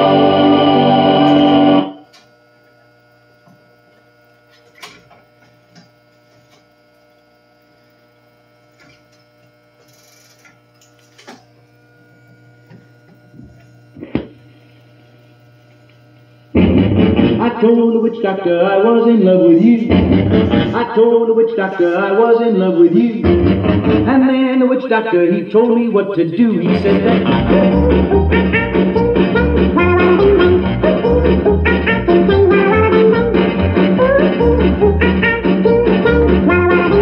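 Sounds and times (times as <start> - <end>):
jukebox music: 0.0 - 2.0, 16.6 - 21.2, 22.0 - 37.0
amplifier hum: 0.0 - 37.0.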